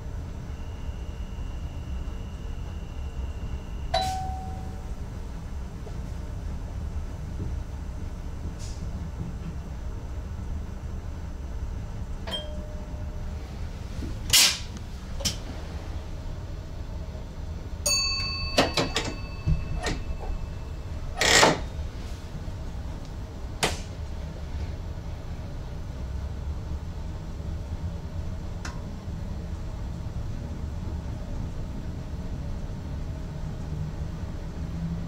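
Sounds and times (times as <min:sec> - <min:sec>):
electric train low rumble: 0:00.0 - 0:35.0
bell-like ding: 0:03.9 - 0:04.9, 0:12.3 - 0:13.0, 0:17.9 - 0:21.0.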